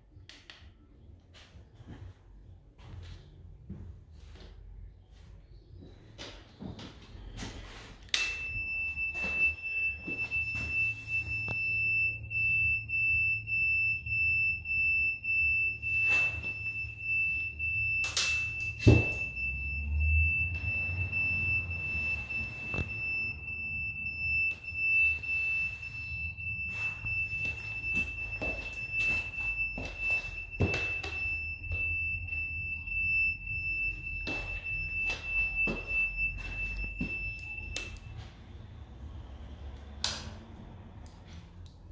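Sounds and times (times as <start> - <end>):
high-pitched electronic beep tone: 8.2 - 38.2.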